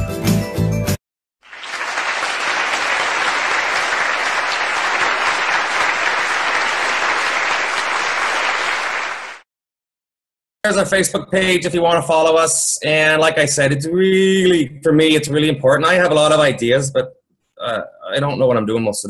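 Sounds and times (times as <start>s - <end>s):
group applauding: 1.4s - 9.5s.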